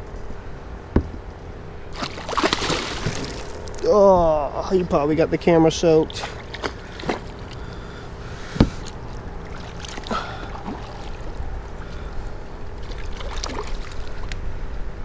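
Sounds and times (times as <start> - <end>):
fish splashing at the surface: 1.9 - 3.8, 8.5 - 12.0, 12.8 - 14.3.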